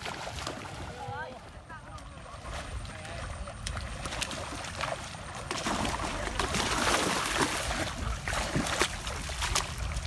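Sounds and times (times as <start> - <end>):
fish thrashing at water surface: 3.8 - 10.0
water sloshing from dragged net: 3.8 - 10.0.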